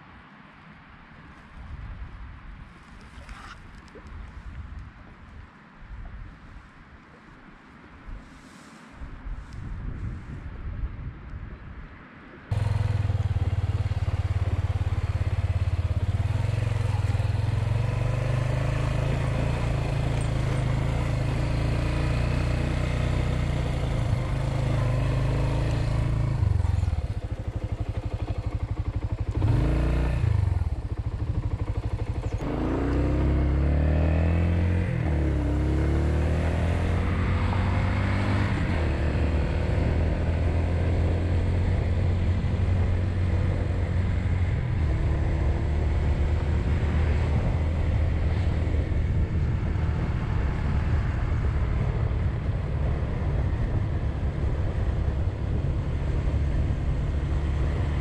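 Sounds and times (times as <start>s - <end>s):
motorcycle engine revving: 12.5s - 58.0s.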